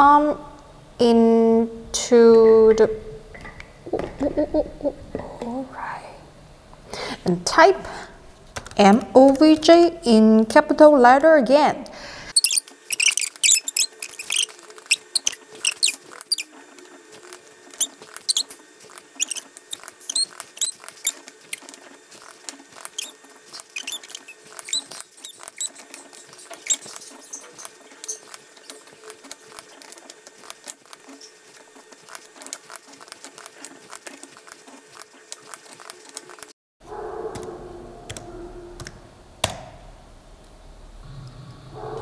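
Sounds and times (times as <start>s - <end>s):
steady motor hum: 0.0s - 36.6s
robot arm motor clicks and chirps: 12.4s - 16.5s, 17.2s - 21.3s, 22.2s - 29.7s.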